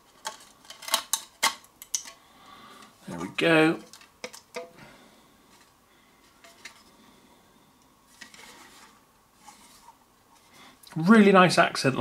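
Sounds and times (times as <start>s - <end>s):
faint rubbing: 8.1s - 10.8s.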